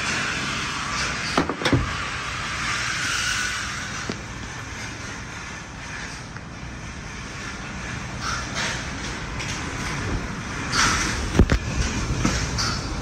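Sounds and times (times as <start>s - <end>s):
hissing rush of background noise: 0.0s - 13.0s
truck door thudding shut: 1.4s - 2.0s.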